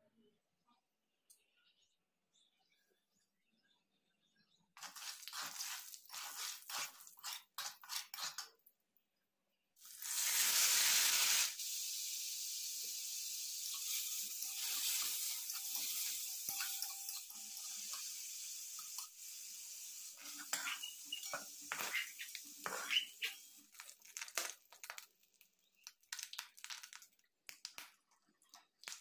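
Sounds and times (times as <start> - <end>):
loud sizzle of frying: 4.8 - 8.4, 9.8 - 28.0
hot oil spluttering: 4.8 - 8.6, 9.8 - 29.0
spatula clinks: 16.5 - 17.5.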